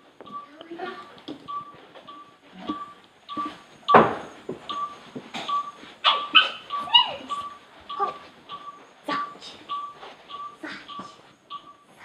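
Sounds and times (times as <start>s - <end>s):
pet whimpering: 6.0s - 8.2s.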